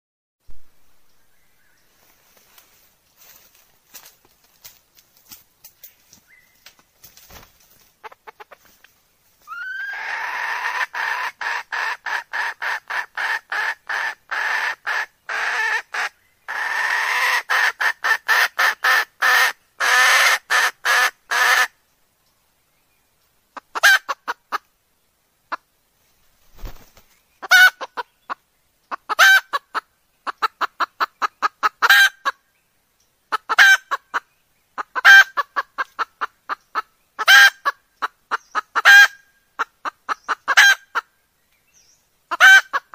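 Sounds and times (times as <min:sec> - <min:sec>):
hen clucking: 0:08.0 - 0:08.8, 0:09.5 - 0:21.7, 0:23.5 - 0:24.7, 0:26.6 - 0:32.4, 0:33.3 - 0:41.1, 0:42.3 - 0:42.9.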